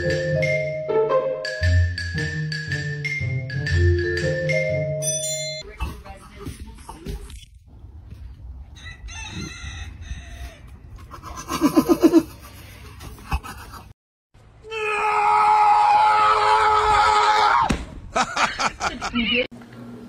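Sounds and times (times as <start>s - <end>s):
high-pitched held tones: 0.0s - 5.7s.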